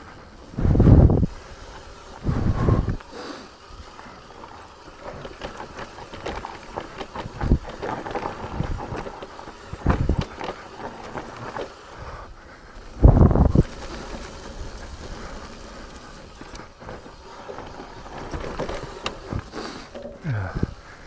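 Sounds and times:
bike tyres rolling over rough ground: 0.0 - 21.0
wind on microphone: 0.5 - 1.4, 2.2 - 3.0, 13.0 - 13.8.

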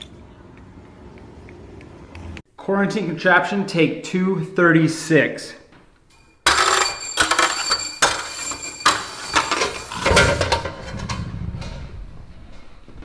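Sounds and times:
objects clattering onto metal and wood: 6.1 - 11.4
rolling rumble: 9.4 - 13.0.

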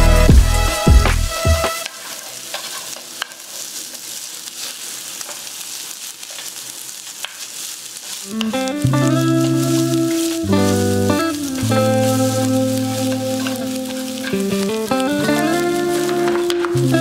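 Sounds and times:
background music with a beat: 0.0 - 1.9
food sizzling in a frying pan: 0.0 - 17.0.

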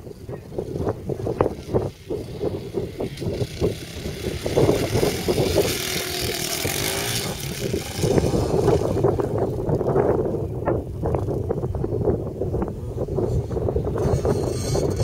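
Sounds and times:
dirt bike engine revving: 0.5 - 10.7.

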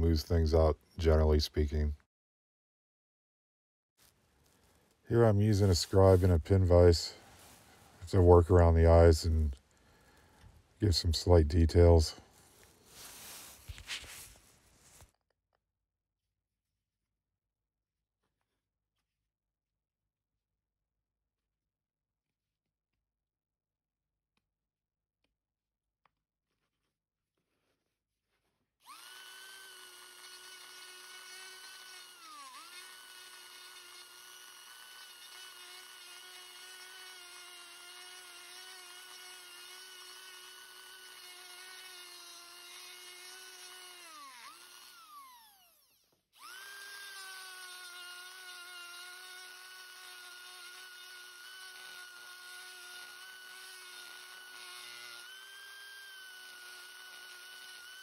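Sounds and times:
rotary tool grinding wood: 4.0 - 14.3, 27.6 - 58.0.

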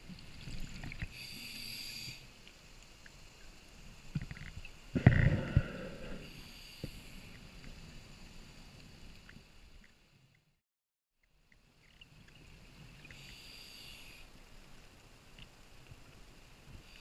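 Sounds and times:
regulator inhale hiss: 1.0 - 2.4, 5.0 - 7.6, 13.0 - 14.3.

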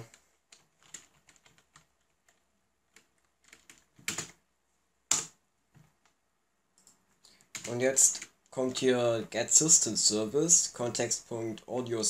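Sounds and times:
soft keyboard keystrokes: 0.0 - 4.4
loud keyboard clicks: 0.1 - 2.4, 3.0 - 4.4.

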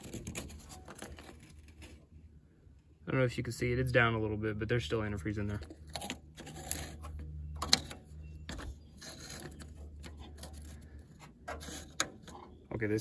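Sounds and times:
metal cap clicking and scraping: 5.5 - 12.6.

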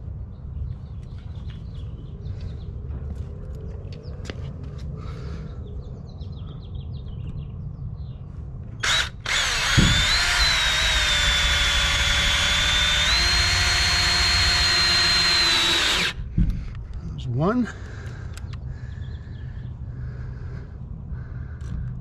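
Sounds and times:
cordless drill whine: 8.8 - 16.2.

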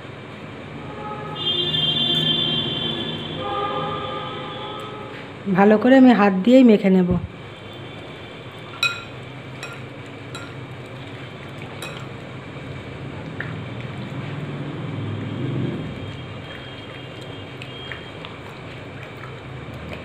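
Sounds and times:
light clinks against glass: 8.8 - 10.6, 11.8 - 12.1.

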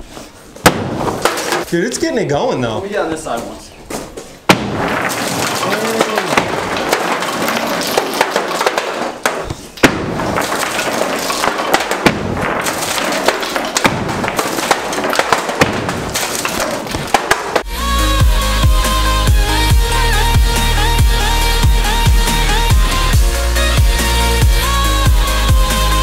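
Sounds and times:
continuous clattering: 0.6 - 1.9, 4.6 - 17.7.

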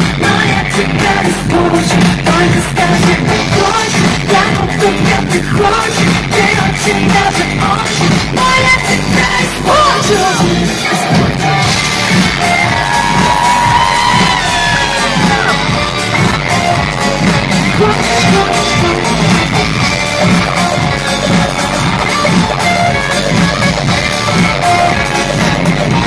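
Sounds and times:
guitar: 0.0 - 26.0
live pop concert music: 0.0 - 26.0.

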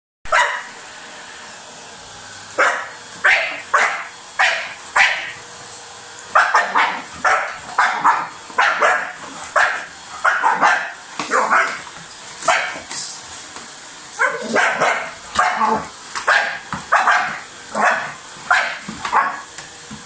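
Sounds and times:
dog barking: 0.3 - 0.7, 2.6 - 5.4, 6.4 - 11.8, 12.4 - 12.8, 14.2 - 19.5
vacuum cleaner motor hum: 0.3 - 20.0.

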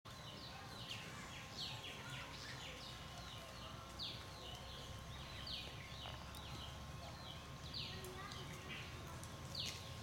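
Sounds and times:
birds chirping: 0.1 - 10.0.

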